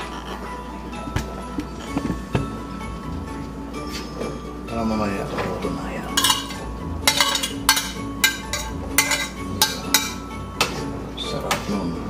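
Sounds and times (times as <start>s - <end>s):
metal spoon tapping ceramic plate: 6.2s - 10.2s.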